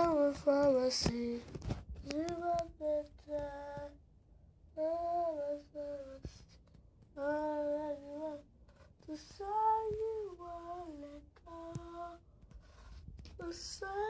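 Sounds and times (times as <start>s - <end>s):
boy singing wordless tune: 0.0s - 4.1s, 4.7s - 12.4s, 13.3s - 14.0s.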